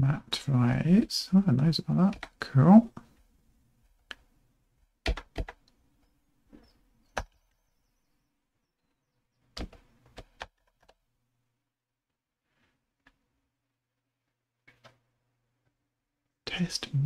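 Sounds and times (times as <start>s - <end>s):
keyboard keystrokes: 5.1s - 5.6s.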